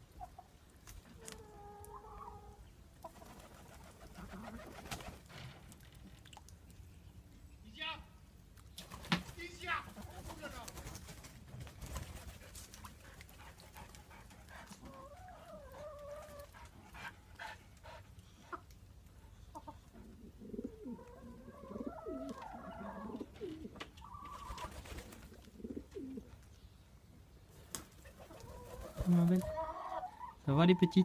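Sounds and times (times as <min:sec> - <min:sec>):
wood pigeons cooing: 0:19.6 - 0:26.4.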